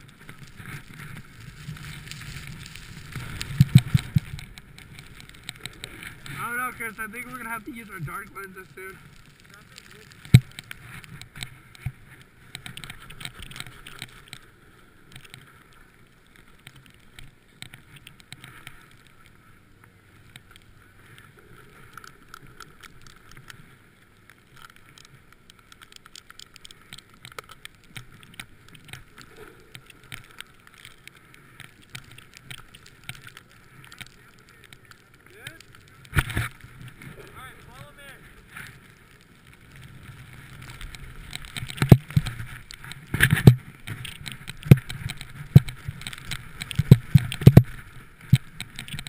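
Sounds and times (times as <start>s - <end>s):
snowboard sliding through powder snow: 0.0s - 12.4s
small crackles and knocks: 0.0s - 49.0s.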